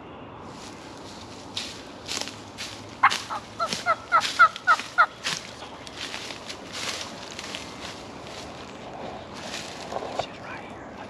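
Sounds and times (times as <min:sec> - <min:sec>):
turkey yelping: 0:03.0 - 0:05.2.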